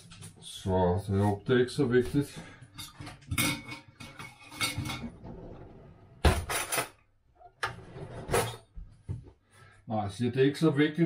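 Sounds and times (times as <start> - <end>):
metal spoon scraping a saucepan: 2.8 - 5.5.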